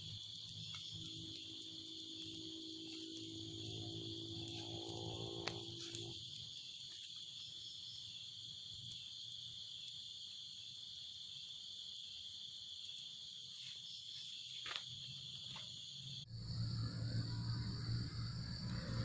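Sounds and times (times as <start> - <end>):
campfire snaps: 0.0 - 11.2
night insects chirping: 0.0 - 19.0
low rumble: 16.3 - 19.0.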